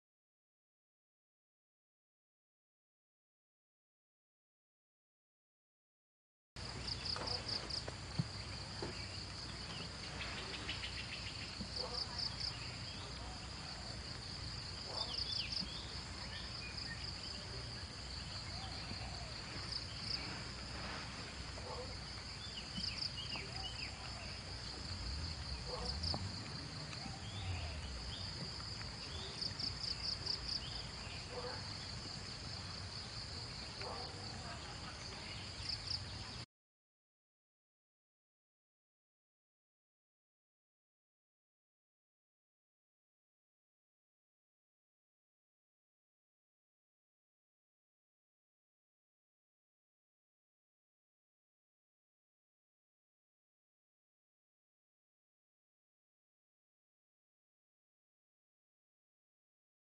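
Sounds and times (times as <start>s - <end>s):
faint low rumble: 6.6s - 35.5s.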